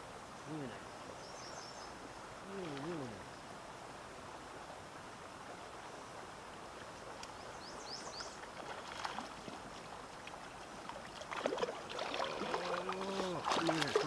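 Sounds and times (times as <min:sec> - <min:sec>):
river flowing: 0:00.0 - 0:14.0
bird chirping: 0:07.3 - 0:08.4
fish splashing: 0:11.0 - 0:14.0.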